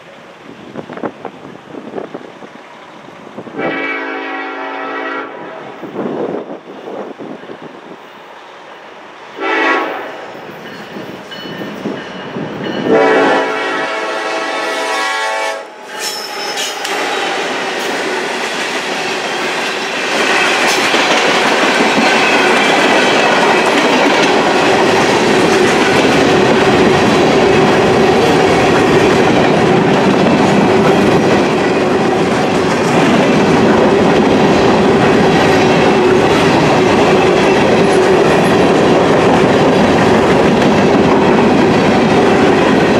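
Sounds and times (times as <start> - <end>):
locomotive air horn: 3.6 - 5.8, 9.4 - 10.3, 12.8 - 15.8
train wheels clattering over rails: 16.0 - 42.9.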